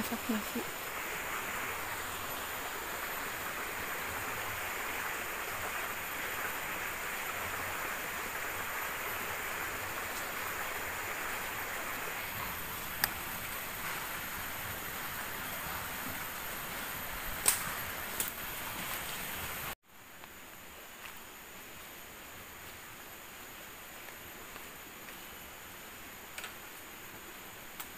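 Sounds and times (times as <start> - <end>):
stream flowing: 0.0 - 19.8
sharp click: 17.4 - 18.4.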